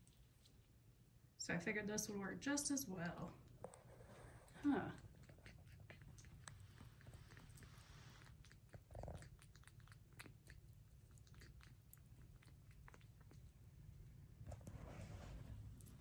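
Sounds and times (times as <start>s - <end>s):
monkey licking and eating: 3.4s - 14.3s.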